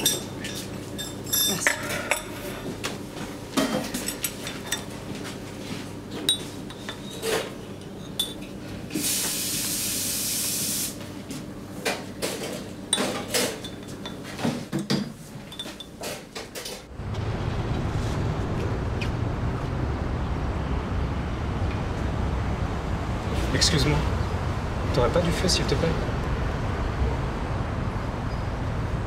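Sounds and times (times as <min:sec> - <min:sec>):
cups and saucers clinking: 0:00.0 - 0:02.8, 0:03.6 - 0:05.0, 0:06.2 - 0:08.6, 0:12.2 - 0:16.8
steady hiss: 0:09.0 - 0:11.0.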